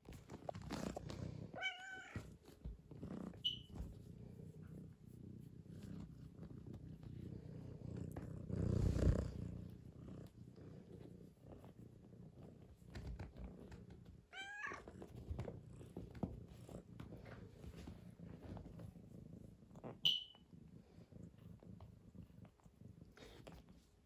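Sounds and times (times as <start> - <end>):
cat purring: 0.0 - 24.0
cat meowing: 1.6 - 2.2, 14.3 - 14.8.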